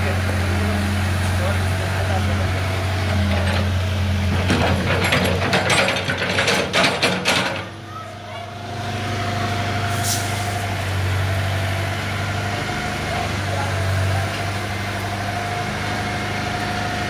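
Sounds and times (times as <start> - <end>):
diesel engine running: 0.0 - 17.0
metallic clanking and rattling: 3.1 - 7.7
brief high hiss: 9.9 - 10.6.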